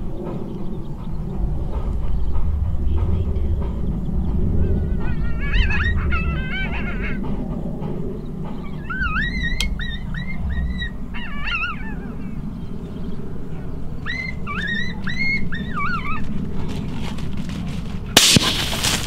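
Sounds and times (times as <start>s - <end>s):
steady low rumble: 0.0s - 19.0s
coyote yelping calls: 4.8s - 7.5s, 8.6s - 12.5s, 14.0s - 16.4s.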